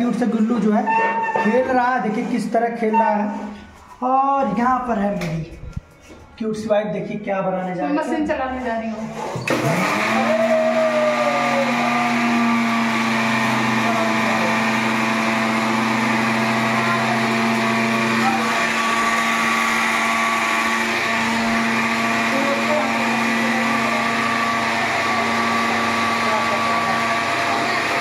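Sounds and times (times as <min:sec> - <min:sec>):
mixer grinder motor humming: 0:09.1 - 0:28.0.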